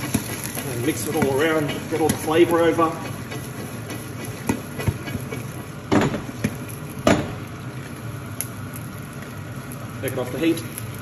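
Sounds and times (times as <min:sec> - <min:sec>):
popcorn popping and knocking: 0:00.0 - 0:07.4
hot pan hissing: 0:00.0 - 0:11.0.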